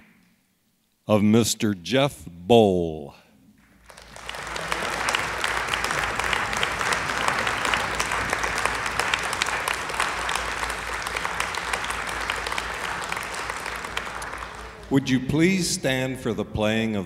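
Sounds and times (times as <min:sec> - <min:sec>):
audience applauding: 0:03.6 - 0:15.5.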